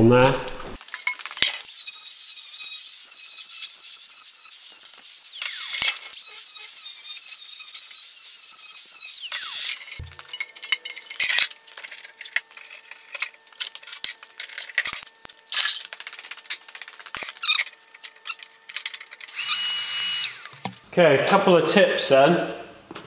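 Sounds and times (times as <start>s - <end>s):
power tool spinning down: 0.8s - 10.2s, 19.3s - 20.7s.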